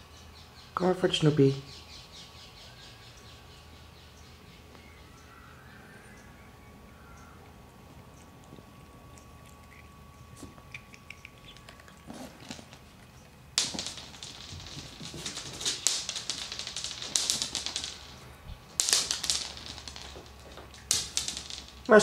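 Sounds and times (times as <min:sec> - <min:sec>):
cat claws clattering on floor: 0:09.7 - 0:22.0.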